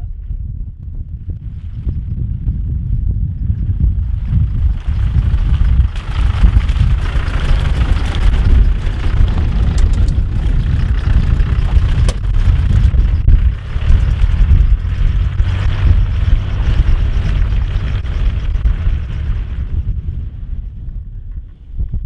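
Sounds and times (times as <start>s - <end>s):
wind buffeting microphone: 0.0s - 22.0s
vehicle engine driving past: 4.2s - 20.8s.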